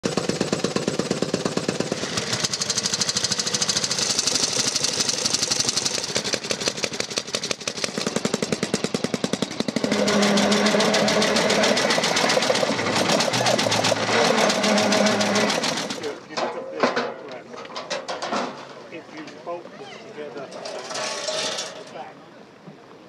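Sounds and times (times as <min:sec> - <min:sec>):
motorcycle engines running: 0:00.0 - 0:16.3.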